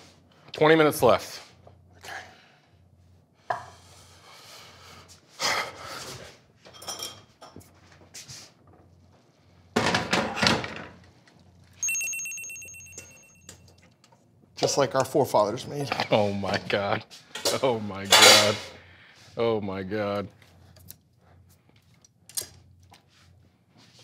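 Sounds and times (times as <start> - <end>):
high ringing tone: 11.8 - 13.9.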